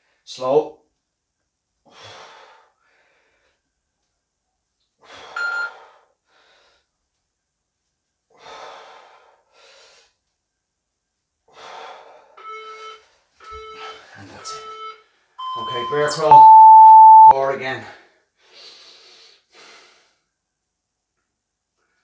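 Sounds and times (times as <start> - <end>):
man breathing heavily: 1.8 - 3.7, 5.0 - 7.0, 8.3 - 10.2, 11.5 - 12.4, 18.1 - 20.3.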